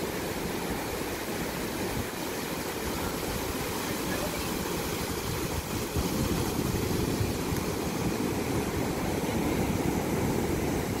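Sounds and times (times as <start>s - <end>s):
ocean surf breaking on a beach: 0.0s - 11.0s
wind buffeting the microphone: 1.1s - 11.0s.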